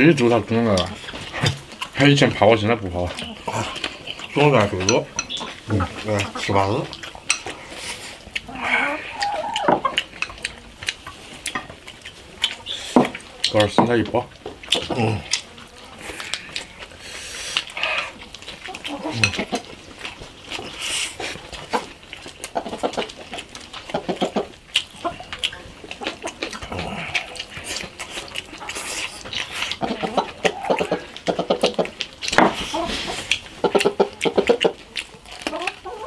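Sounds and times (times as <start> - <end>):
wet chewing and lip-smacking: 0.0 - 36.0
chopsticks clicking against bowls: 3.1 - 7.6, 9.2 - 15.5, 17.5 - 19.7.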